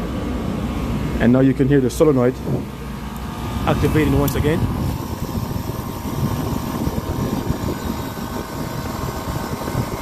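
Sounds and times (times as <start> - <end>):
compressor mechanical drone: 0.0 - 10.0
solenoid valve cycling: 2.7 - 10.0.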